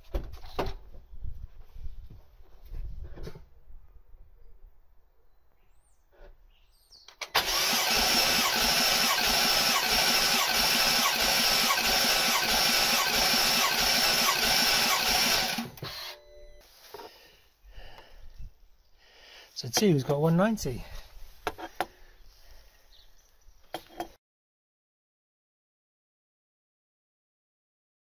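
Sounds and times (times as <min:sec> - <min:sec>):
engine cranking on starter motor: 0:07.1 - 0:16.2.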